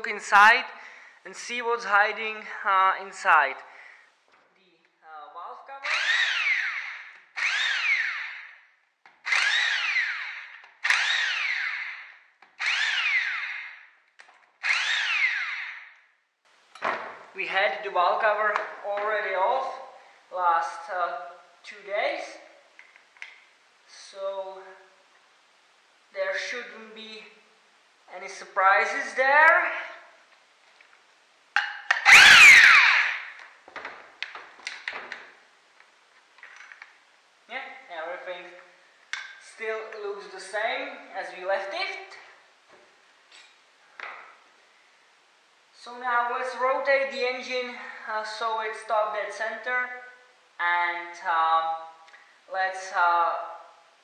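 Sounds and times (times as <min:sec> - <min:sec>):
impact wrench whining: 0:05.8 - 0:16.0, 0:31.6 - 0:33.5.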